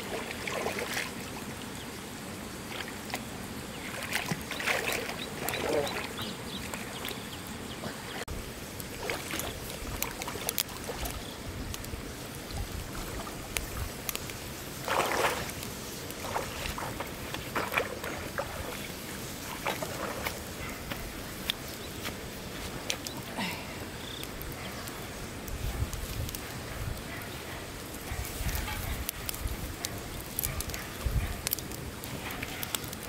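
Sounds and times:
water splashing from wading: 0:00.0 - 0:01.4, 0:03.8 - 0:07.0, 0:08.8 - 0:11.2, 0:14.8 - 0:20.7
wood fire crackling: 0:00.0 - 0:33.0.

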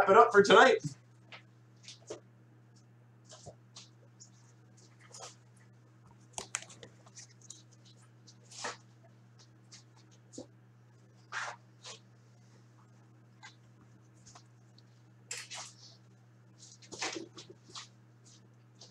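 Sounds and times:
steady low hum: 0:00.0 - 0:18.9.

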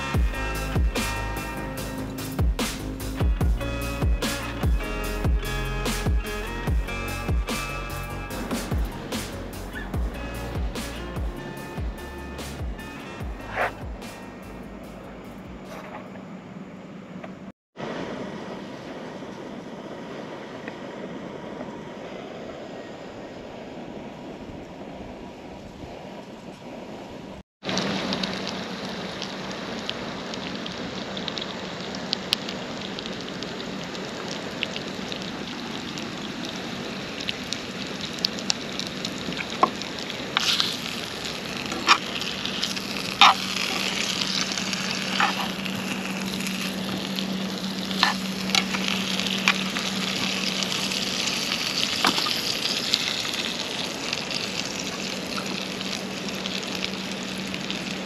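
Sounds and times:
sausages sizzling in pan: 0:39.8 - 0:58.0.

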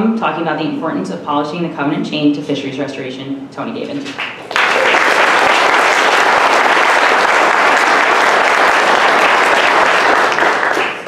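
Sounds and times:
audience clapping: 0:04.1 - 0:11.0.

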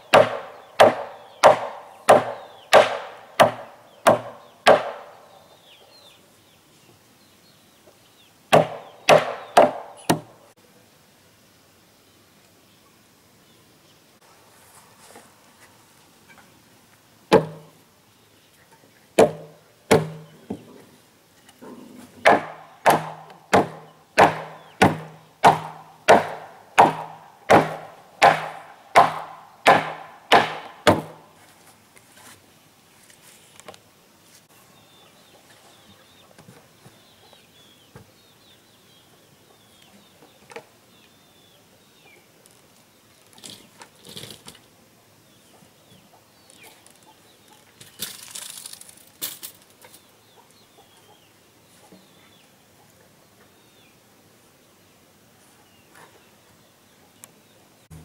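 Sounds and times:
tool striking wood: 0:00.1 - 0:05.2, 0:08.5 - 0:10.3, 0:17.3 - 0:17.7, 0:19.2 - 0:20.3, 0:22.2 - 0:31.2.

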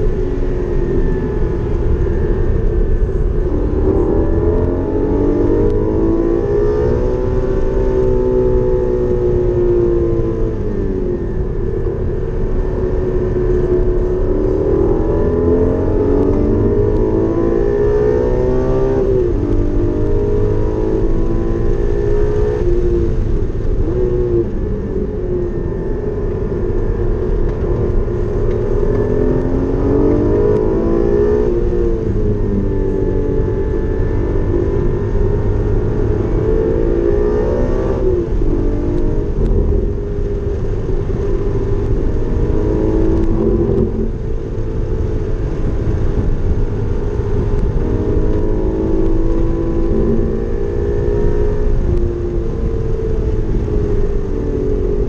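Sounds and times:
car engine at full throttle: 0:00.0 - 0:55.0
road and tyre rumble: 0:00.0 - 0:55.0.

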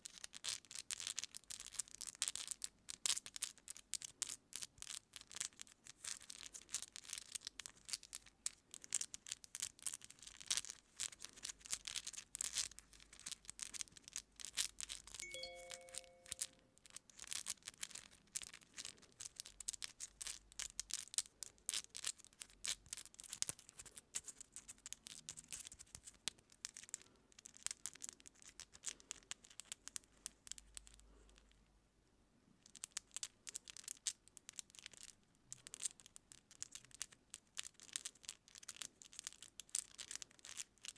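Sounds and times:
chime-like tone: 0:15.2 - 0:16.5.

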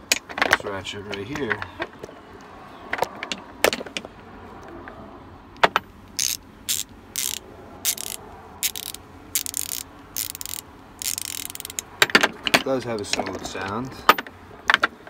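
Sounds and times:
ratchet clicking: 0:06.2 - 0:12.2.

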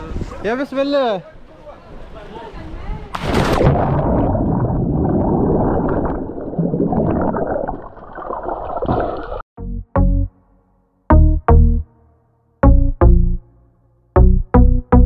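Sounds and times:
splash into water: 0:03.1 - 0:09.4
underwater gurgling and bubbling: 0:03.7 - 0:09.4.

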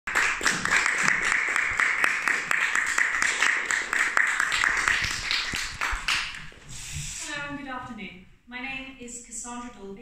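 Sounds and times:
audience applauding: 0:00.1 - 0:06.5.

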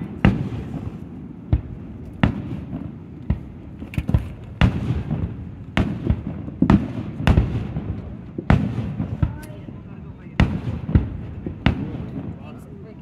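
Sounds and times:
firework shells bursting: 0:00.0 - 0:09.6.

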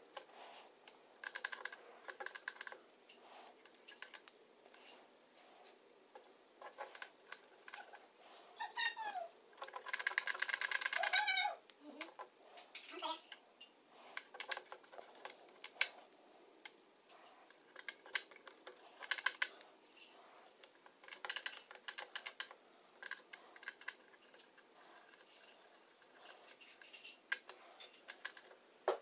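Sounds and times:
small metal parts clicking: 0:00.8 - 0:04.9, 0:09.6 - 0:11.3, 0:16.6 - 0:28.6.

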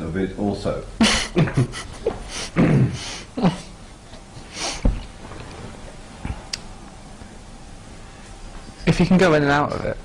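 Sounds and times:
man stifling laughter: 0:01.0 - 0:03.7.

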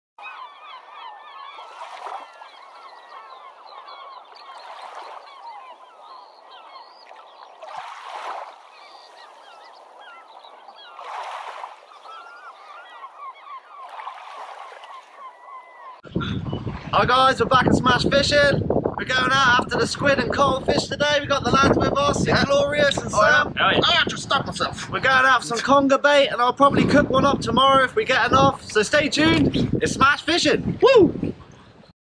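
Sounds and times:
flock of birds calling: 0:00.2 - 0:16.6.

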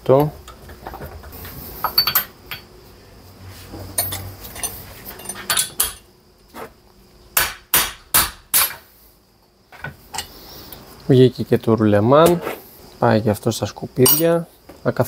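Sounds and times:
hammer striking metal: 0:07.4 - 0:08.8.

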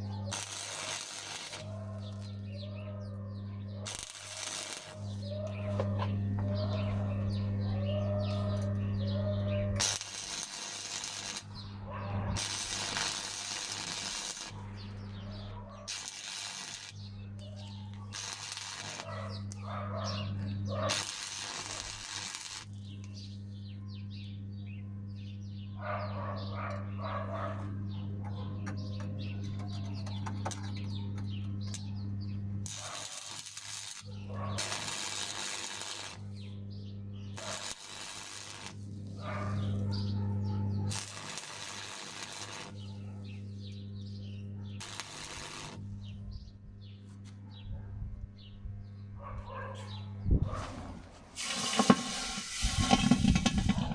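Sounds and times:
welding arc crackling: 0:00.0 - 0:02.5, 0:03.8 - 0:07.6, 0:08.3 - 0:15.1, 0:15.8 - 0:19.7, 0:20.3 - 0:22.9, 0:32.6 - 0:36.3, 0:37.3 - 0:39.3, 0:40.9 - 0:42.9, 0:44.8 - 0:46.0, 0:51.2 - 0:53.9
steady low hum: 0:00.0 - 0:53.9.

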